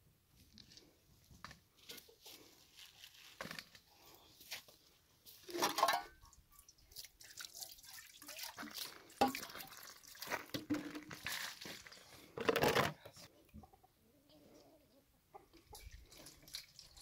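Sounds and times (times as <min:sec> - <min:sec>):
water splashing and dripping: 0:06.5 - 0:12.1, 0:15.7 - 0:17.0.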